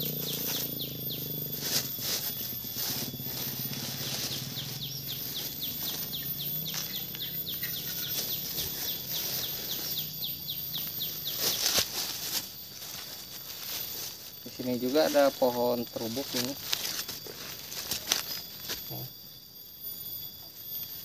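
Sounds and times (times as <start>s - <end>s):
rustling and soft pattering: 0.0s - 19.1s.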